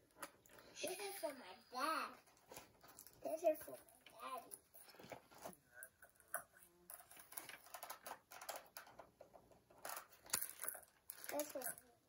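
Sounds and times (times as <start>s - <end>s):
plastic toy parts clicking: 7.0s - 9.1s.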